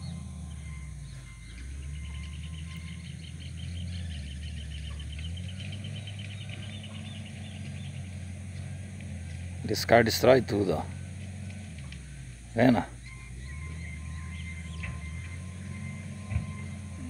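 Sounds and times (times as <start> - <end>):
bird chirping rapidly: 0.0 - 8.2, 12.9 - 17.0
low rumble: 0.0 - 17.0.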